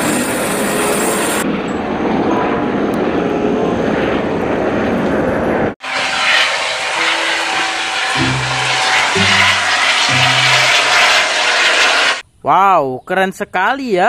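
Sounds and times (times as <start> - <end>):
helicopter engine and rotor: 0.0 - 5.6.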